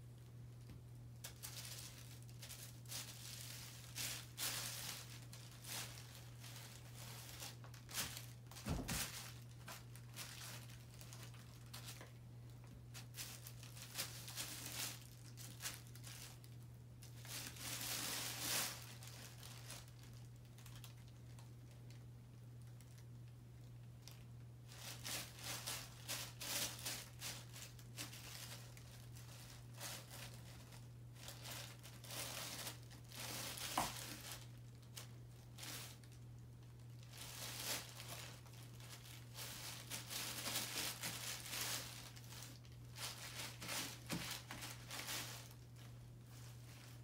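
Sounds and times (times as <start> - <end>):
plastic bags crinkling: 0.6 - 47.0.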